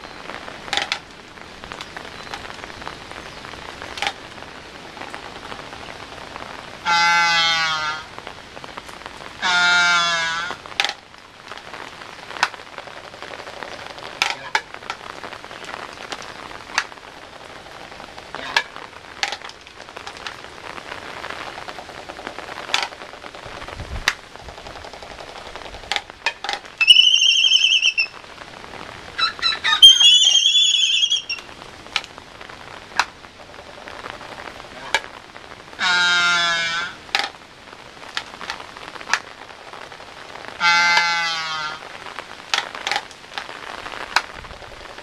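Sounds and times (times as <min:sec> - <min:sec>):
rain patter: 0:00.0 - 0:45.0
albatross whistling calls: 0:26.8 - 0:28.2, 0:29.2 - 0:31.5
moaning bird call: 0:26.8 - 0:28.2, 0:29.2 - 0:31.4.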